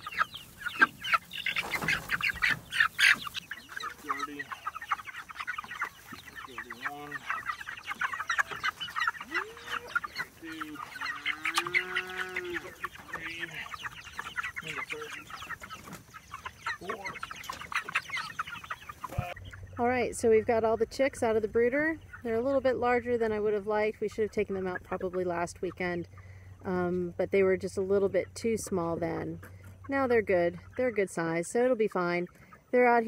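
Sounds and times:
low drawn-out chicken calls: 0.0s - 19.8s
chicks peeping: 0.0s - 33.0s.

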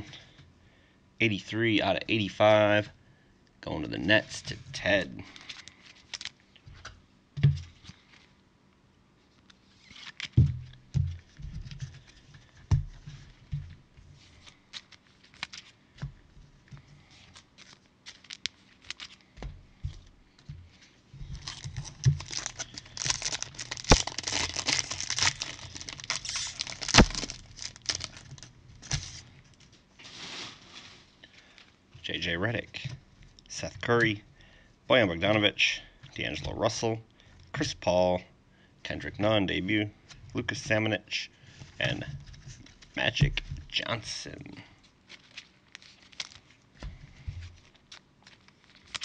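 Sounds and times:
foil wrapper crinkling and tearing: 5.3s - 6.4s, 14.4s - 15.8s, 17.2s - 19.3s, 21.3s - 29.3s, 45.0s - 46.7s, 47.6s - 49.0s.

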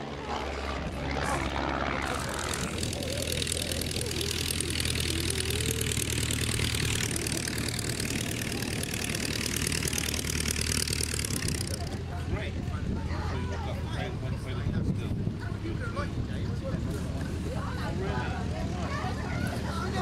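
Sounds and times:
biplane engine running: 0.0s - 20.0s
wind rushing over microphone: 14.5s - 16.9s.

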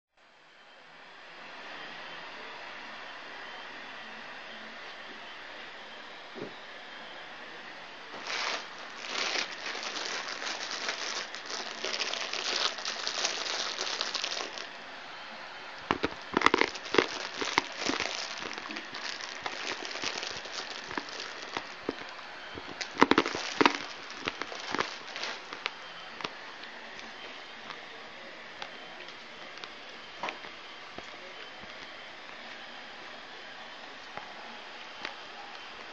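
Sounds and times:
bag crinkling: 8.1s - 14.7s, 15.9s - 26.3s.

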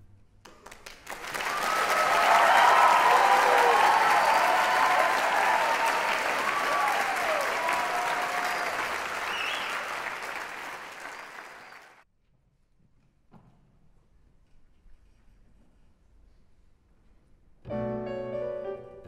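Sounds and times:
audience applauding: 0.5s - 12.0s.

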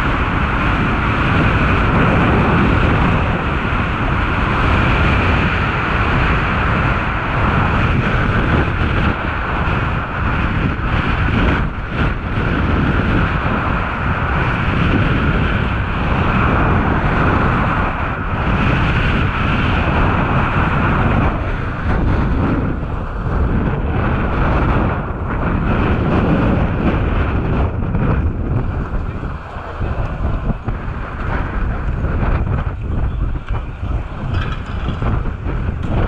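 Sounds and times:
wind buffeting microphone: 0.0s - 36.0s
skis scraping over snow: 19.8s - 36.0s.

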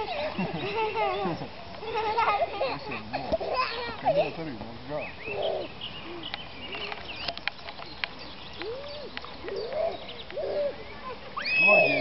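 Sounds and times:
birds chirping: 0.0s - 12.0s
sharp clicks: 6.3s - 9.6s.

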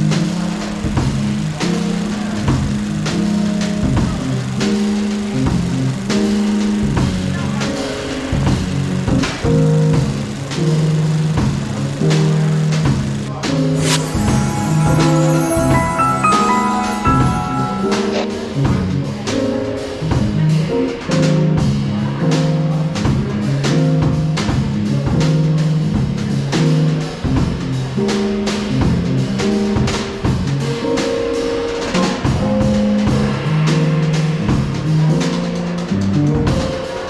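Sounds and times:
keyboard music: 13.8s - 18.7s.

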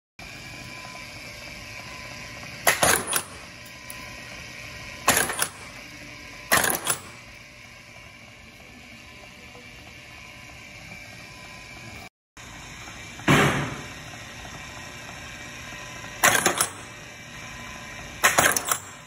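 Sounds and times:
machine humming: 0.2s - 19.0s
stapling machine metallic clacks: 18.2s - 19.0s.

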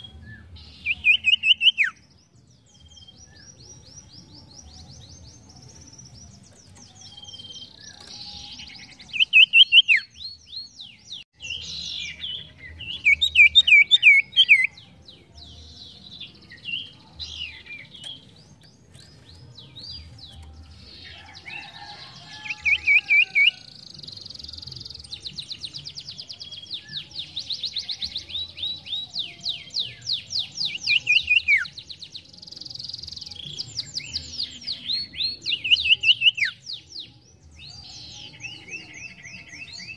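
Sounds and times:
bird chirping and trilling: 0.0s - 31.9s.

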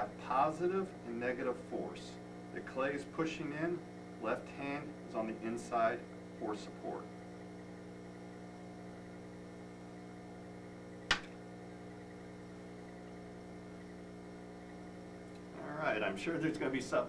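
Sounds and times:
electrical hum: 0.0s - 17.0s
sharp click: 11.1s - 11.4s.

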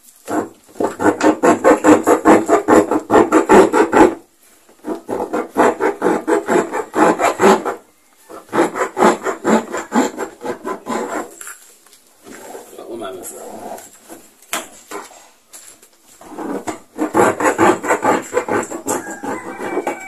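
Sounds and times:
saw rasping through plastic: 0.2s - 11.5s, 16.2s - 20.0s.

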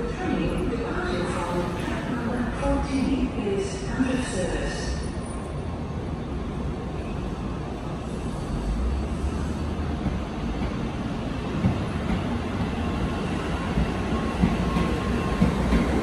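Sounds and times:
train wheels rumbling: 7.8s - 16.0s.

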